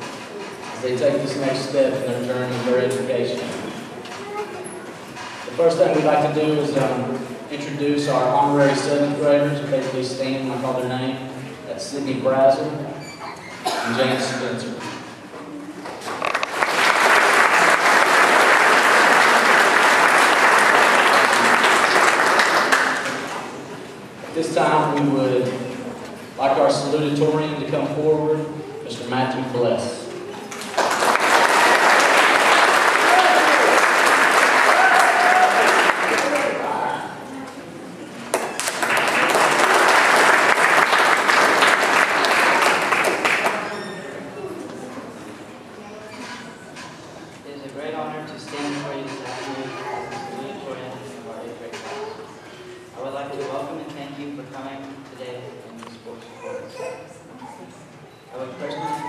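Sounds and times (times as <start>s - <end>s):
audience applauding: 16.0s - 23.4s, 30.5s - 36.7s, 38.3s - 43.8s.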